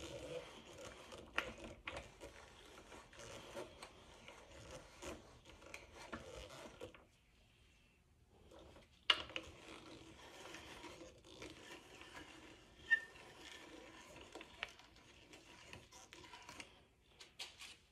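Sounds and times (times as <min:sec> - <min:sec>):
drill bit scraping through wood: 0:09.4 - 0:16.7
brief squeak: 0:12.8 - 0:13.6.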